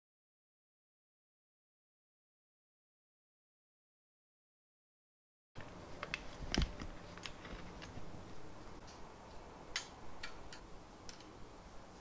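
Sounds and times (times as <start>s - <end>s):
metal hardware clicks and taps: 9.7s - 11.4s.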